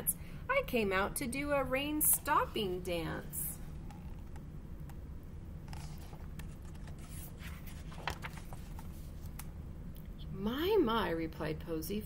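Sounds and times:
low room hum: 0.0s - 12.0s
book pages turning: 5.7s - 9.5s.

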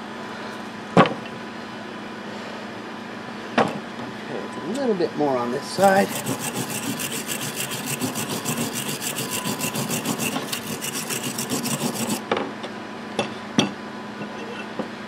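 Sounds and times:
wire brush scrubbing metal: 5.7s - 12.2s.

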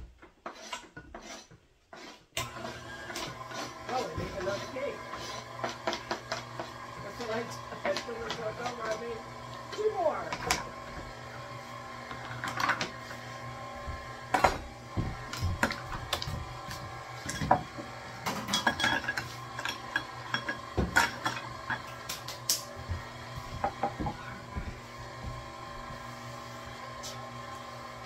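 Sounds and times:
kitchen utensils clinking: 17.2s - 22.7s.

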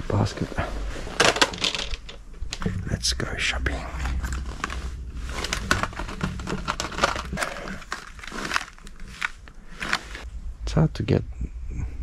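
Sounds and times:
packaging rustling and clicking: 1.1s - 2.7s, 4.0s - 10.3s.

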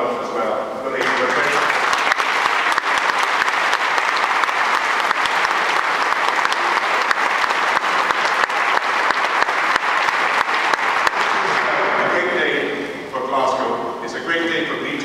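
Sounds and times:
crowd clapping in echoing hall: 1.0s - 12.3s.

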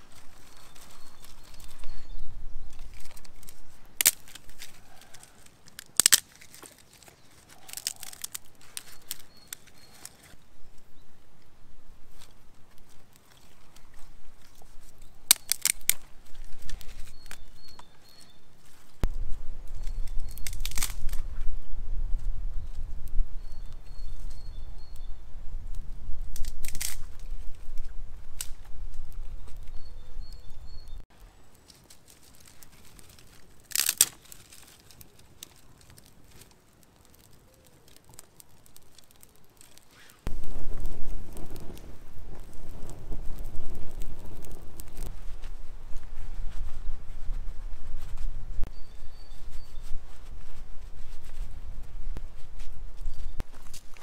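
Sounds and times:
dry twigs snapping and crackling: 0.0s - 11.2s, 12.0s - 54.0s
bird chirping faintly: 22.6s - 25.4s, 29.4s - 31.7s.

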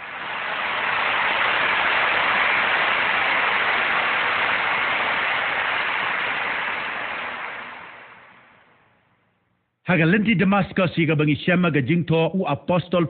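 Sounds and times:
large crowd applauding: 0.0s - 8.7s.

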